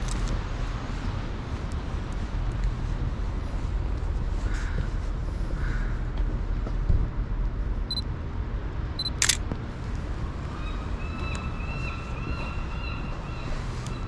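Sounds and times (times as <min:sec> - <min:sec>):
low rumble of street traffic: 0:00.0 - 0:14.0
camera beeping: 0:09.0 - 0:09.4
camera shutter click: 0:09.2 - 0:09.4.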